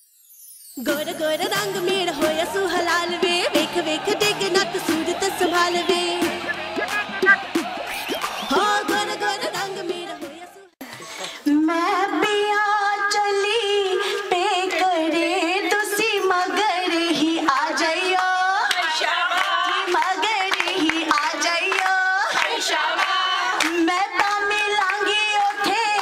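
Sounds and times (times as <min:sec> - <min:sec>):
woman singing folk song: 0:00.8 - 0:06.3
rhythmic hand-clapping: 0:01.4 - 0:10.7, 0:15.7 - 0:26.0.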